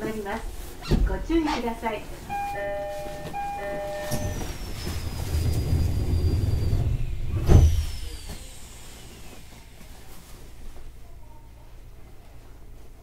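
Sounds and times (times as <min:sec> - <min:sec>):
two-note door chime: 0:02.3 - 0:04.9
sliding doors rumbling shut: 0:02.3 - 0:08.3
falling high whine: 0:02.3 - 0:09.4.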